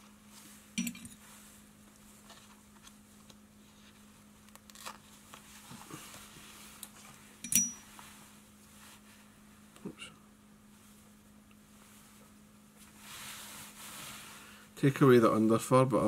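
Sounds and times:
steady low hum: 0.0 - 16.0
metallic clinks of tool on bench: 0.8 - 1.2, 7.4 - 7.8.

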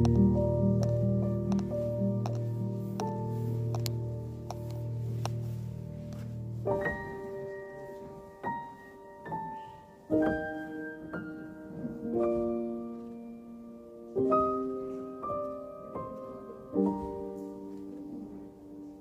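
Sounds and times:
slow gentle piano music: 0.0 - 19.0.

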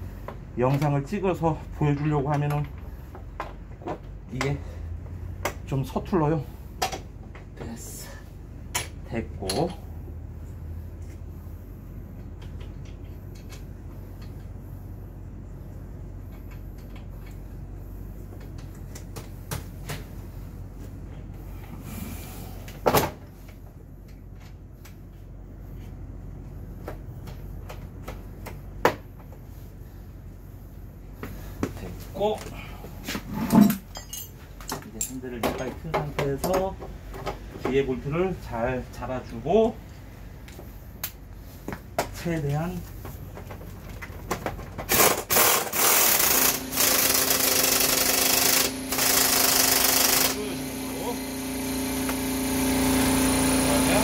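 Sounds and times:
low steady hum: 0.0 - 45.8
faint clicks of parts: 12.1 - 14.6, 15.7 - 17.7, 18.3 - 19.7, 23.4 - 26.0
impact wrench hammering: 44.9 - 52.6.

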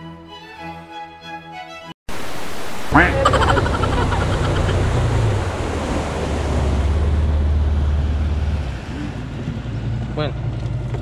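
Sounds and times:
water rushing past hull: 2.1 - 10.0
outboard motor humming: 2.8 - 11.0.

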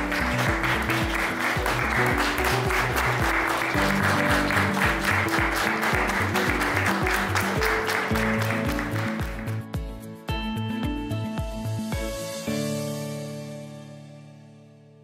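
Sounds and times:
audience applauding: 0.0 - 9.6
background music with bass beat: 0.0 - 13.4.

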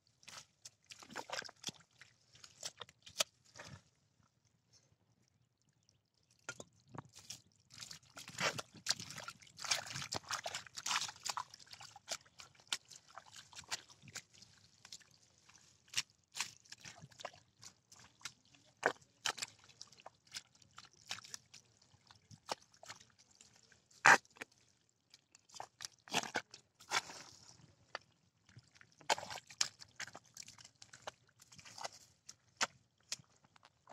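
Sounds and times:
hands squelching in wet mud: 0.2 - 3.8, 7.1 - 33.9.

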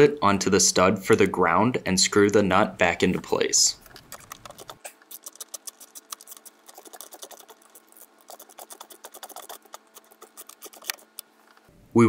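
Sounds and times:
small metallic clicks and scratches: 3.8 - 11.7.

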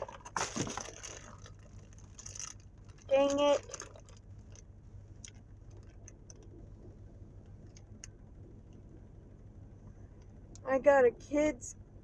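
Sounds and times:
plastic wrapper crinkling: 0.0 - 6.5
low hum: 0.0 - 12.0.

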